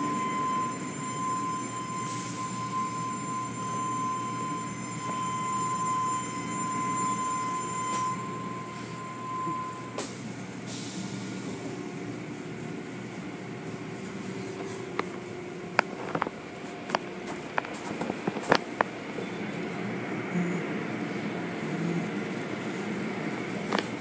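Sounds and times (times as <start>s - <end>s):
car wash machinery rumble: 0.0s - 24.0s
high steady whine: 0.0s - 24.0s.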